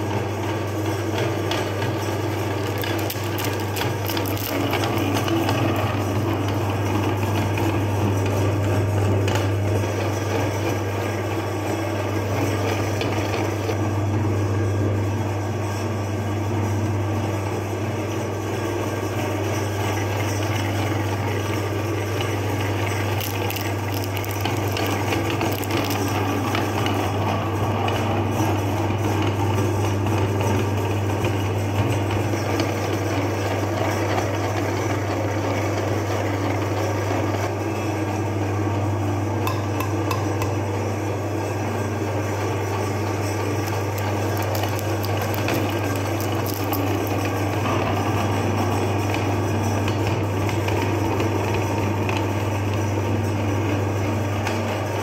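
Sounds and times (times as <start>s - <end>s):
electric meat grinder humming: 0.0s - 55.0s
clicks and rattles: 43.6s - 47.4s.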